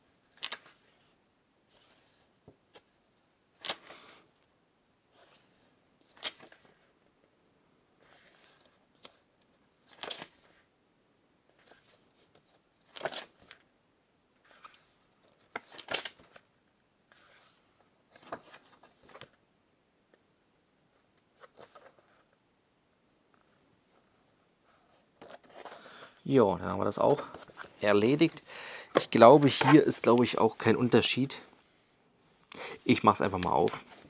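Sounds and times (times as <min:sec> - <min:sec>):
glossy paper pages turning: 0:06.1 - 0:06.9, 0:09.8 - 0:10.6, 0:11.6 - 0:13.6, 0:14.4 - 0:16.4, 0:21.3 - 0:22.2, 0:25.2 - 0:26.2, 0:26.8 - 0:31.7, 0:32.3 - 0:34.0.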